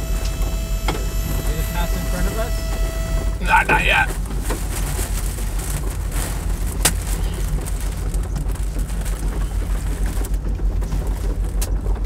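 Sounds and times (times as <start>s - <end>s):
wind and rain buffeting vehicle: 3.4s - 12.0s.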